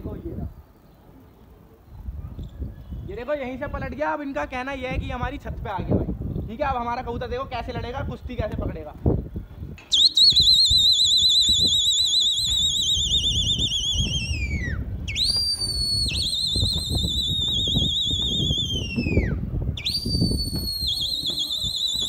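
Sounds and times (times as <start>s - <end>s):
pea whistle trilling blasts: 9.8s - 22.0s.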